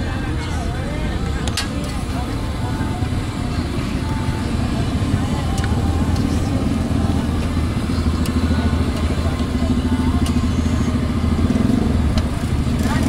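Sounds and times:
low engine-like rumble: 0:00.0 - 0:13.0.

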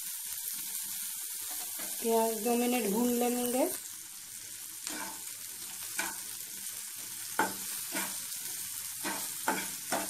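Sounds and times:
onions sizzling in oil: 0:00.0 - 0:10.0
metal spatula scraping pan: 0:09.0 - 0:10.0.

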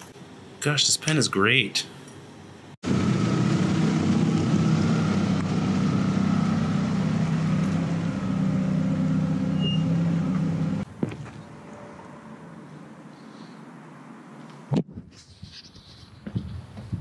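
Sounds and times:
car engine running at low revs: 0:02.8 - 0:10.9.

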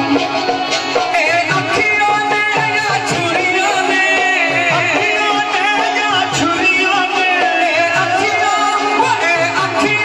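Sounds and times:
drum beats: 0:00.0 - 0:10.0
person singing: 0:00.0 - 0:10.0.

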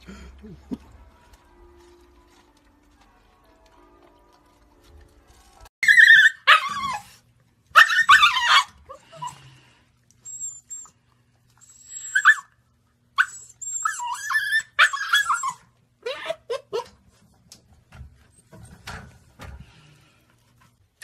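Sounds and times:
puppy yelping and howling: 0:05.8 - 0:09.4, 0:11.7 - 0:12.6, 0:13.2 - 0:17.0.

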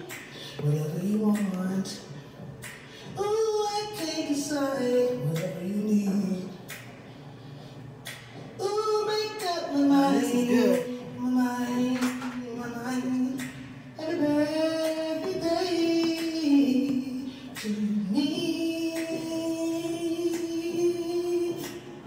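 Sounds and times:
woman singing unaccompanied: 0:08.6 - 0:13.4.

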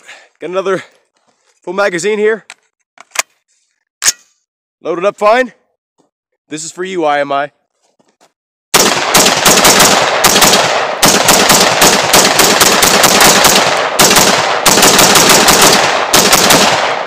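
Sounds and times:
rifle firing rapid shots: 0:08.7 - 0:17.0
gunshot echo: 0:08.8 - 0:17.0.

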